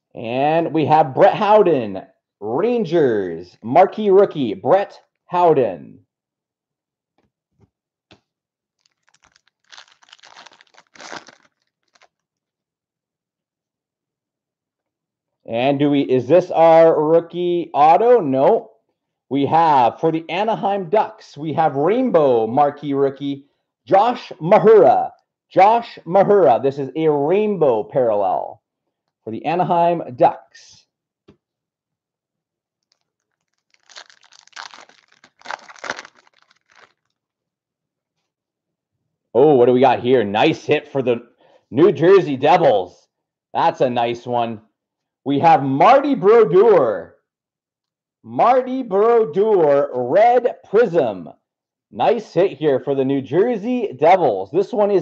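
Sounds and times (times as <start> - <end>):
foil pack tearing and crinkling: 8.8 - 12.2, 32.9 - 37.1
cards and wrappers rustling: 8.8 - 12.4, 32.8 - 37.2.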